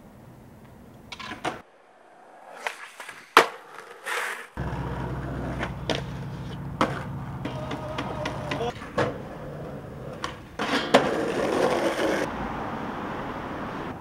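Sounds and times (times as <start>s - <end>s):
wheels rolling on rough pavement: 0.5s - 14.0s
skateboard clacks: 0.6s - 1.7s, 2.3s - 12.3s
skateboard scrape: 1.1s - 12.3s.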